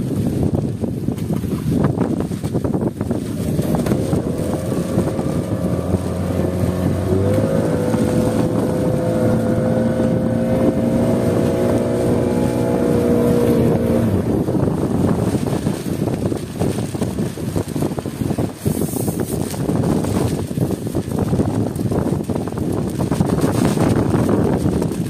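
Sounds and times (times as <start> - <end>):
boat engine running: 0.0 - 25.0
wind noise on microphone: 0.0 - 25.0.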